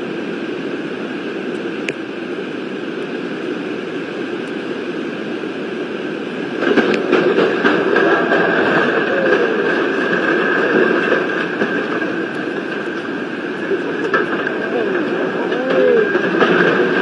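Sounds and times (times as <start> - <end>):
heavy rain: 0.0 - 17.0
river rushing: 0.0 - 17.0.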